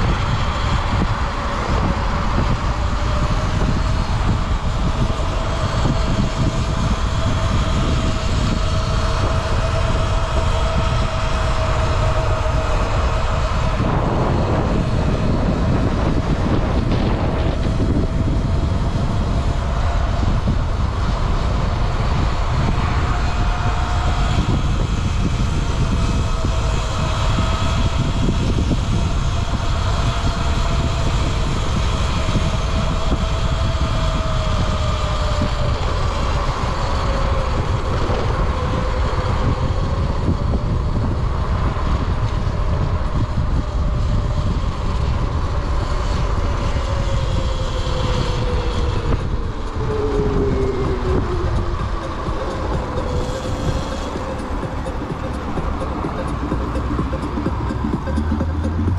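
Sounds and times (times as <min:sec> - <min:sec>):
electric motor whine: 0:00.0 - 0:58.9
heavy wind: 0:00.0 - 0:58.9
road rumble: 0:00.0 - 0:58.9.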